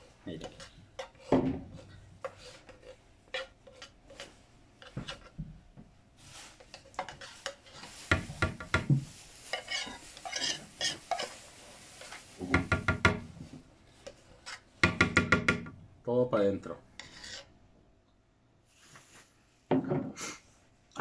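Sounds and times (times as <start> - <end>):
spoon scraping a tin can: 0.4 - 5.4, 6.5 - 8.3, 9.5 - 12.3, 17.0 - 17.5.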